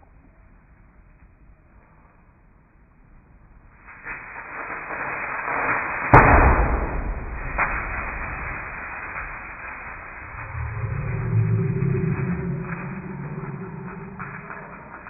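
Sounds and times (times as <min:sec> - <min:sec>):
flames burning: 0:03.6 - 0:15.0
whoosh of burning gas: 0:03.9 - 0:15.0.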